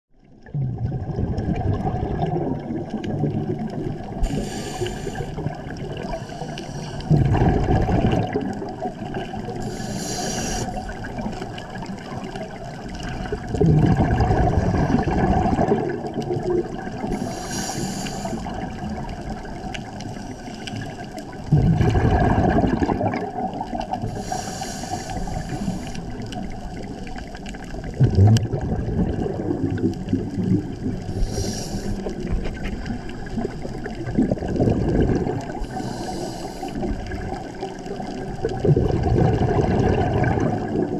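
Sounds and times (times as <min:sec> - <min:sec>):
exhaled bubbles rumbling: 0:00.1 - 0:40.9
regulator inhalation hiss: 0:04.2 - 0:05.4, 0:06.1 - 0:07.1, 0:09.6 - 0:10.9, 0:17.1 - 0:18.6, 0:24.0 - 0:26.1, 0:31.1 - 0:32.2, 0:35.6 - 0:36.9.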